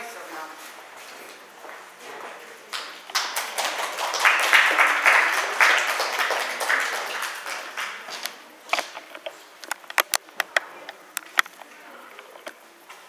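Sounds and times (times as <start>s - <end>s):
audience applauding: 2.7s - 8.4s.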